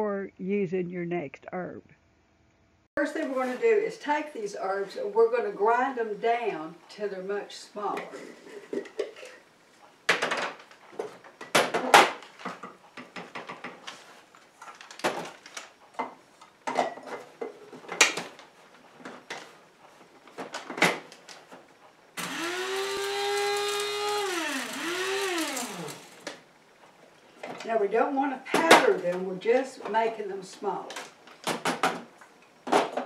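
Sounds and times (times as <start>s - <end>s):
blade grinder motor whining: 22.2s - 26.3s.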